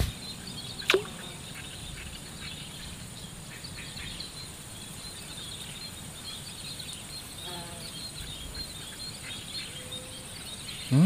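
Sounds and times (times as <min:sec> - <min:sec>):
small chirps: 0:00.8 - 0:01.4
high insect drone: 0:04.4 - 0:08.3.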